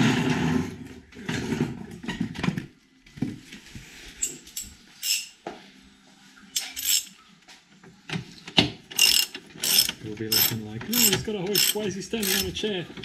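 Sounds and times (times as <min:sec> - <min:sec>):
socket wrench metallic clinks: 0:04.2 - 0:05.3, 0:06.6 - 0:07.1, 0:09.0 - 0:12.5.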